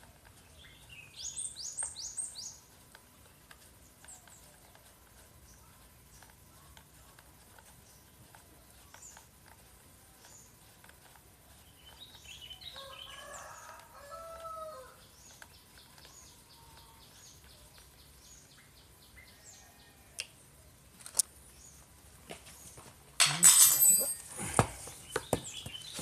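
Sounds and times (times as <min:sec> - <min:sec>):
rooster crowing faintly: 0:12.6 - 0:15.0.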